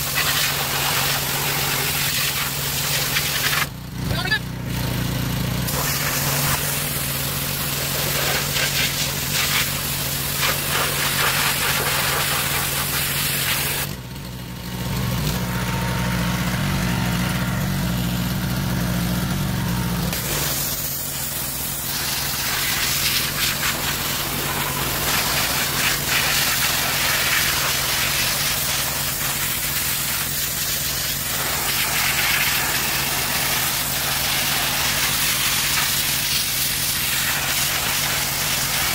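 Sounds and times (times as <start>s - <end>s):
water jet hissing: 0.0s - 3.7s, 5.7s - 13.9s, 20.1s - 38.9s
pressure washer engine running: 0.0s - 38.9s.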